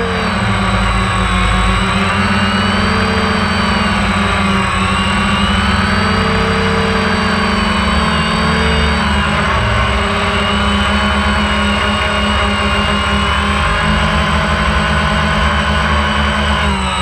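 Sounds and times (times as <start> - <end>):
drone propellers buzzing: 0.0 - 17.0.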